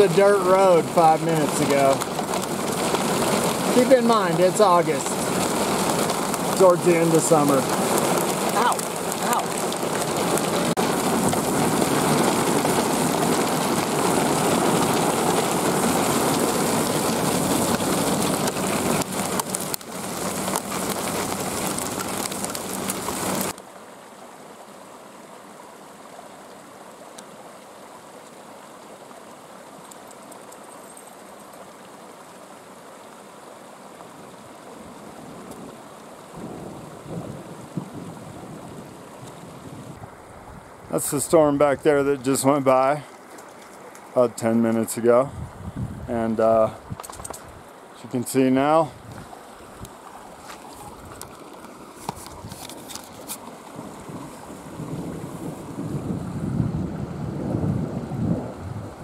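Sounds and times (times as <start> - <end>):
hail pelting on a vehicle: 0.0 - 23.6, 34.0 - 40.0, 48.0 - 56.5
faint steady hiss: 0.0 - 56.7.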